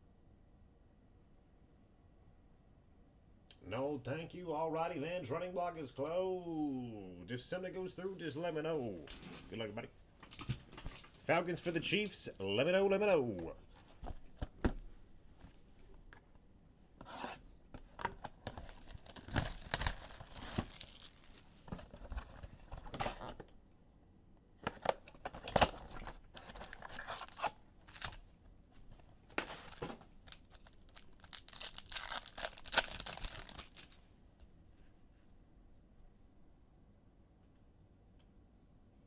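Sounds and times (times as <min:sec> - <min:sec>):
wrappers tearing and crinkling: 0:18.3 - 0:21.7, 0:25.9 - 0:28.2, 0:29.4 - 0:34.1.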